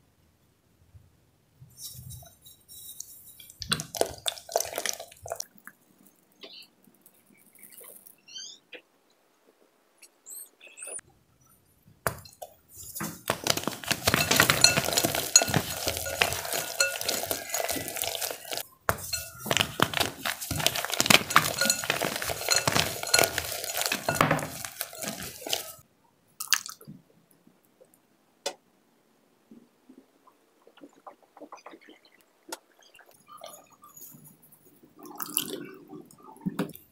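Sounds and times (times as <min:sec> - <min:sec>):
chalk crunching and crackling: 0:01.8 - 0:06.1, 0:12.7 - 0:25.8.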